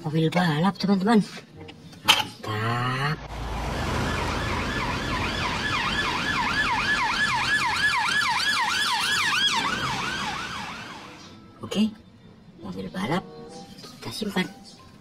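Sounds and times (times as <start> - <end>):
police siren fast yelp: 3.7 - 11.3.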